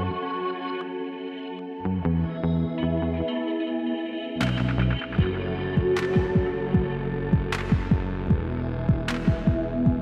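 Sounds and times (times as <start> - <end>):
electronic music: 0.0 - 10.0.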